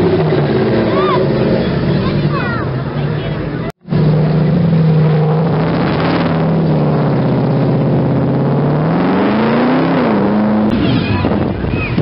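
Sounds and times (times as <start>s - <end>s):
car engine exhaust note: 2.9s - 11.8s.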